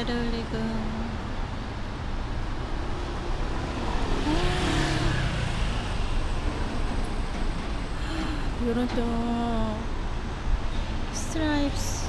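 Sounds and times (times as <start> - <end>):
traffic rumble: 0.0 - 12.0
car passing: 1.3 - 8.7.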